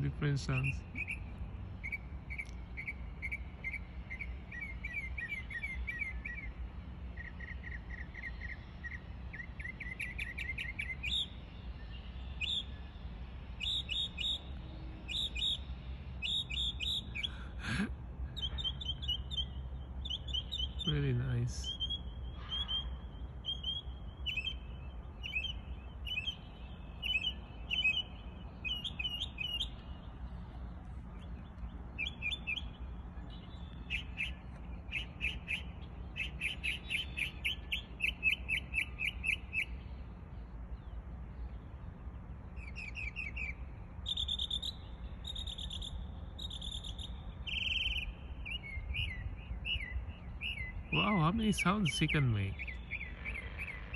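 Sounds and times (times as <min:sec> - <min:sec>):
mockingbird singing varied phrases: 0:00.0 - 0:30.4, 0:31.2 - 0:40.0, 0:42.1 - 0:53.9
steady low rumble: 0:20.7 - 0:36.2.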